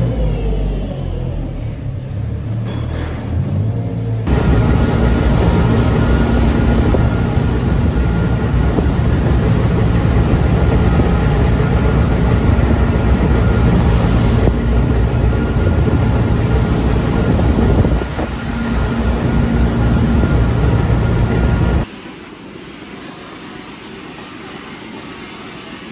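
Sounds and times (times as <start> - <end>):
straw blower running: 4.3 - 21.8.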